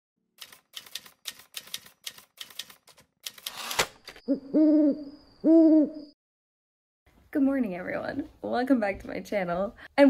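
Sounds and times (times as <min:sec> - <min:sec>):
typewriter keys clacking: 0:00.4 - 0:03.6
owl hoots: 0:04.3 - 0:06.1.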